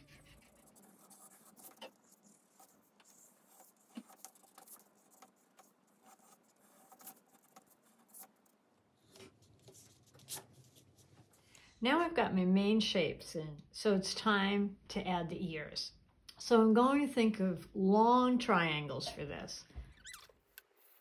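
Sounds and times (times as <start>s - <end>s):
pencil scratching on paper: 0.0s - 8.5s
paper rustling: 0.0s - 11.4s.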